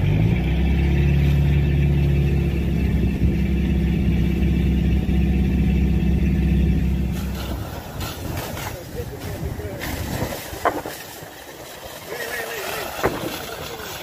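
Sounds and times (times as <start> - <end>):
pump engine droning: 0.0 - 14.0
water jet hissing: 7.1 - 14.0.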